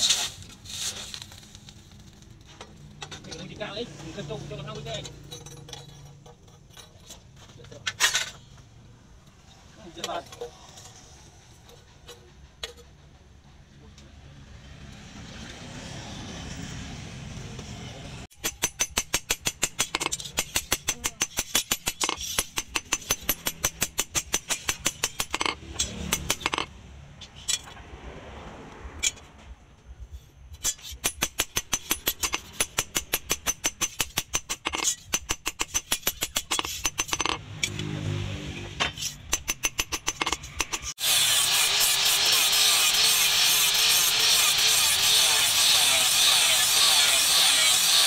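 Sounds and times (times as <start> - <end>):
hammer striking blade on anvil: 18.3 - 26.7.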